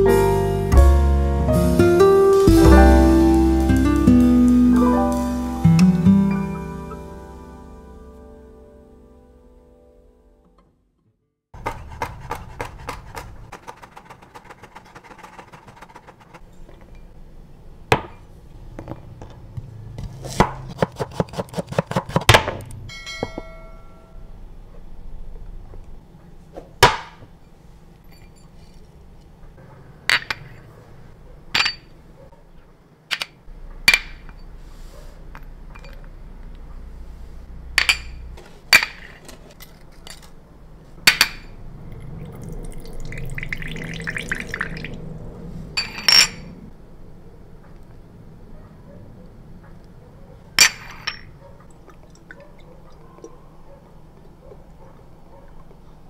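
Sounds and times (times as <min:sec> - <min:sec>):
glass bowls clinking: 0:22.9 - 0:24.2, 0:28.1 - 0:28.8, 0:31.6 - 0:32.0, 0:35.7 - 0:36.1, 0:37.8 - 0:40.3, 0:41.1 - 0:45.0, 0:45.8 - 0:46.6, 0:50.6 - 0:53.3
glass ringing: 0:22.9 - 0:24.3, 0:31.6 - 0:31.9, 0:45.8 - 0:46.6, 0:50.6 - 0:51.3.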